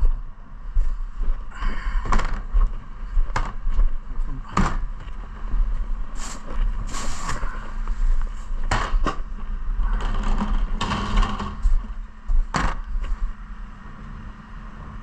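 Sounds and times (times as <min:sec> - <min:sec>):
bin knocks and rattles: 0:09.9 - 0:11.8.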